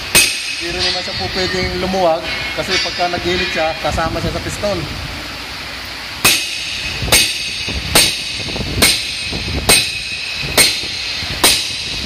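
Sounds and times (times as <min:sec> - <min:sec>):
hammer striking metal: 0:00.0 - 0:03.9, 0:06.2 - 0:12.0.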